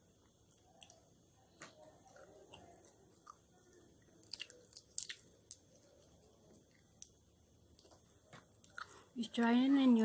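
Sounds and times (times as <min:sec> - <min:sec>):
peanut shells cracking: 0:01.6 - 0:09.0.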